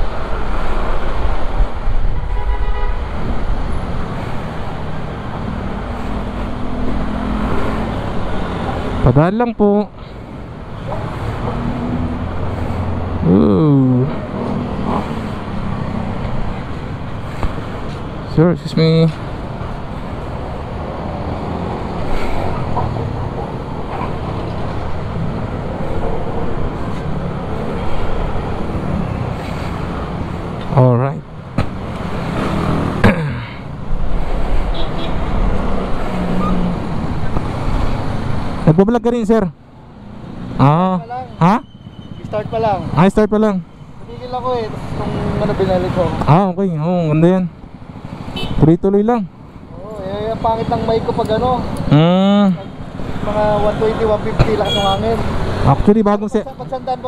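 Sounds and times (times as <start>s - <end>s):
street traffic: 0.0s - 57.0s
vehicle engines idling: 44.0s - 57.0s.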